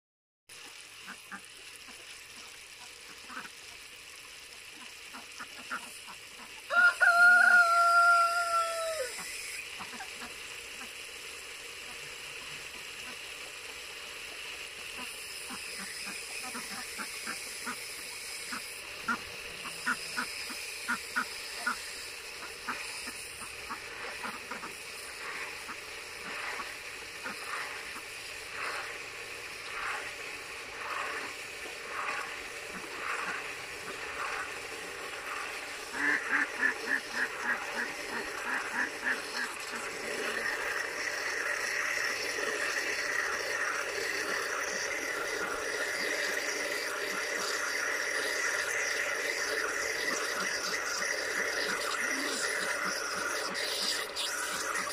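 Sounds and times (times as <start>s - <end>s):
ducks quacking: 15.0s - 17.8s, 18.5s - 28.0s, 31.9s - 34.5s, 35.2s - 54.9s.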